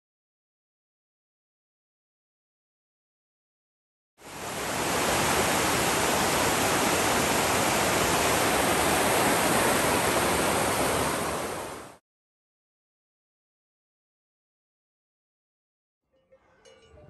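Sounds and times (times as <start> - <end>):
river rushing over rocks: 4.2 - 12.0.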